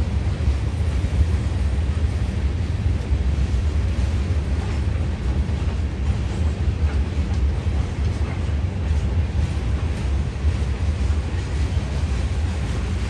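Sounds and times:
freight train rumbling: 0:00.0 - 0:13.0.

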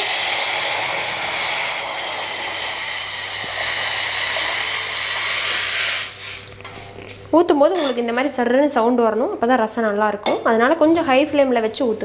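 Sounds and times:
liquid sizzling in hot oil: 0:00.0 - 0:06.5.

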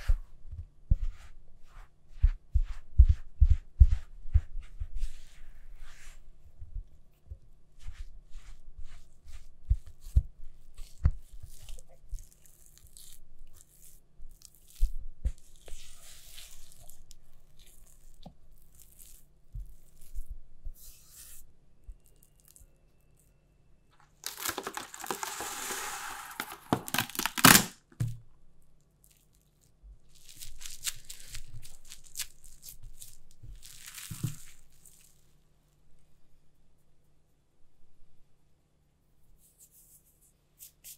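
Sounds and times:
cling film crinkling: 0:24.0 - 0:27.8, 0:30.2 - 0:35.2
cling film tearing: 0:24.2 - 0:27.8.

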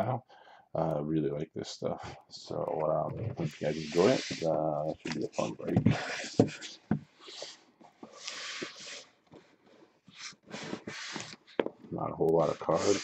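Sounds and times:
hands scraping cardboard box: 0:03.4 - 0:07.6, 0:10.1 - 0:11.6, 0:12.4 - 0:13.0.

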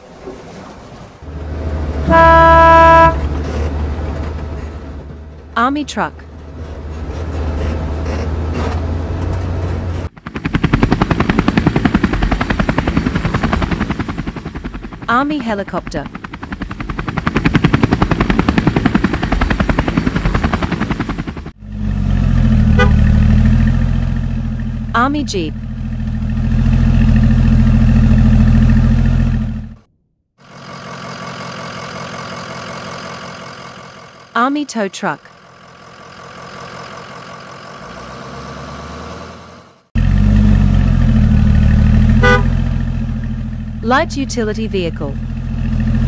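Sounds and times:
helicopter rotor chop: 0:09.2 - 0:29.8, 0:40.0 - 0:46.0
engine idling: 0:10.1 - 0:29.8, 0:35.3 - 0:37.9, 0:40.0 - 0:46.0
loud vehicle engine idling: 0:35.3 - 0:38.2.

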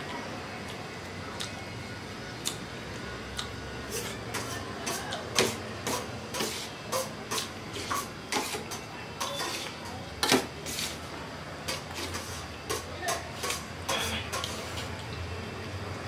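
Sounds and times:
spoon clinking and scraping a plate: 0:05.9 - 0:10.8.

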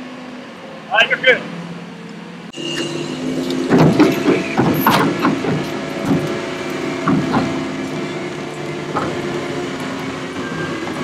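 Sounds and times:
crane engine running: 0:00.0 - 0:11.0
irregular knocks: 0:07.0 - 0:07.7.

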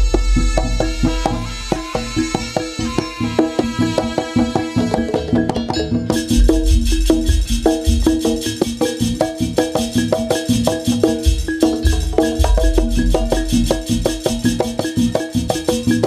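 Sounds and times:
gamelan ensemble playing: 0:00.2 - 0:16.0
deep low beats: 0:06.2 - 0:08.6, 0:10.9 - 0:15.5.

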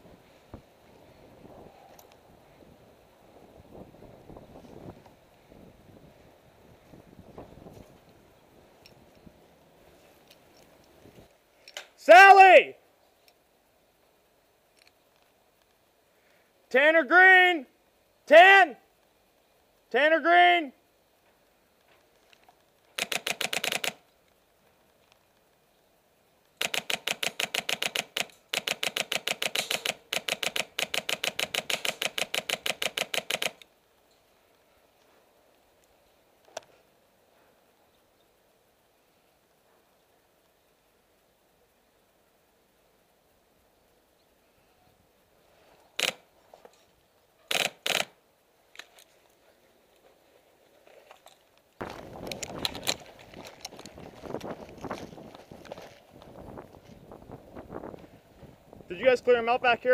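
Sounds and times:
airsoft rifle full-auto bursts: 0:23.0 - 0:24.0, 0:26.6 - 0:33.6, 0:46.0 - 0:46.2, 0:47.5 - 0:48.2
sharp clacks: 0:23.0 - 0:24.0, 0:26.6 - 0:33.7
footsteps through grass: 0:49.1 - 0:58.0.

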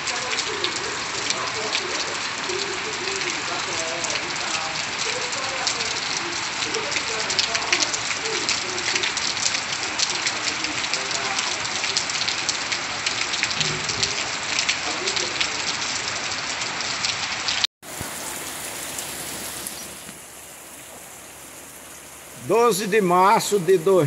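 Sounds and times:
rain patter: 0:00.0 - 0:24.0
smooth rain hiss: 0:17.8 - 0:24.0.

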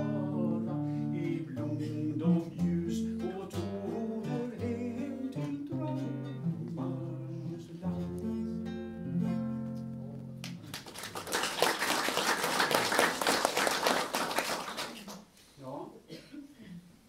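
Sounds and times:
acoustic guitar plucked notes: 0:00.0 - 0:10.5
audience applause: 0:10.6 - 0:15.2.

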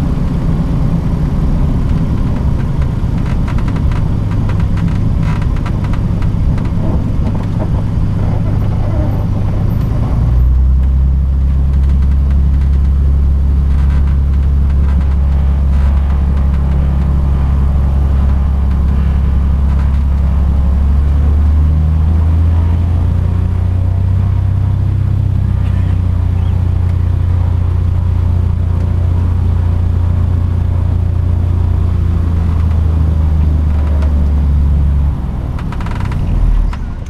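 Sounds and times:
turboprop engine droning: 0:00.0 - 0:37.0.

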